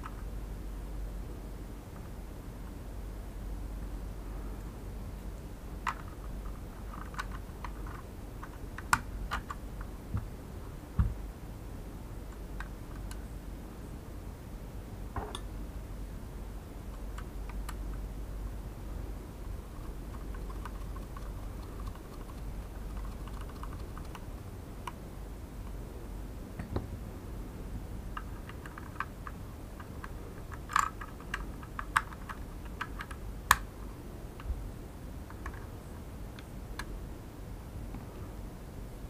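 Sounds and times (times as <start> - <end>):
small tools clicking on plastic: 6.9 - 9.6.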